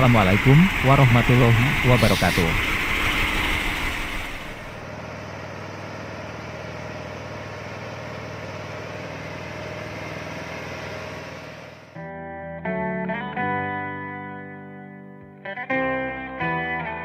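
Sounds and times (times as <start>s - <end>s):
truck diesel engine running: 0.0s - 12.0s
electric guitar music: 12.0s - 17.0s.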